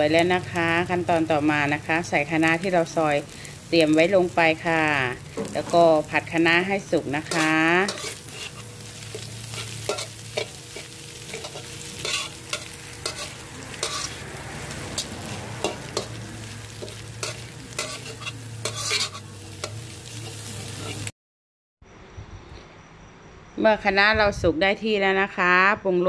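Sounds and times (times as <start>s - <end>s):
food sizzling: 0.0s - 21.1s
metal spatula scraping a wok: 7.2s - 21.1s.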